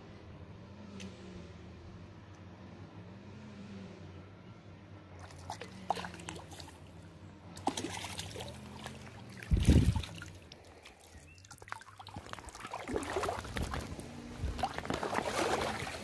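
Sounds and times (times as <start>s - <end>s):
low steady hum: 0.0s - 16.0s
water splashing and dribbling: 5.2s - 16.0s.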